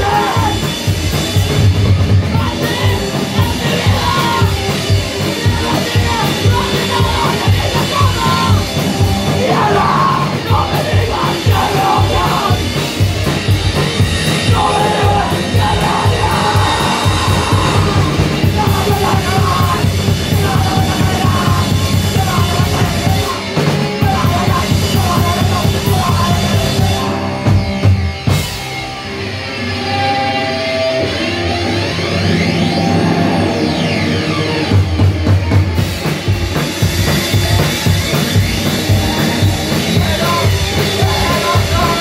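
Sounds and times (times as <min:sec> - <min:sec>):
shouted vocals: 0:00.0 - 0:00.8, 0:02.2 - 0:13.0, 0:14.2 - 0:27.5, 0:37.4 - 0:42.0
drum kit: 0:00.0 - 0:30.0, 0:30.7 - 0:42.0
distorted electric guitar: 0:00.0 - 0:42.0.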